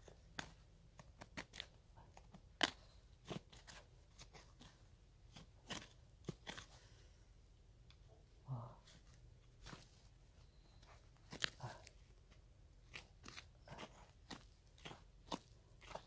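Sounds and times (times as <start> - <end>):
hand pick digging stony soil: 0.1 - 7.0, 9.6 - 12.0, 12.8 - 16.0.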